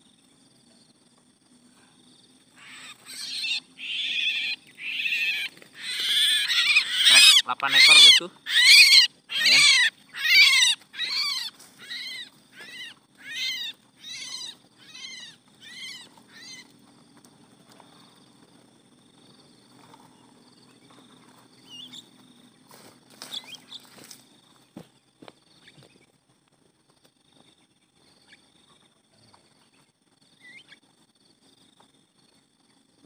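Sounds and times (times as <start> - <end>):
birds squawking harshly: 2.5 - 16.7
faint bird chirps: 2.5 - 16.7, 20.2 - 22.1, 27.3 - 30.8.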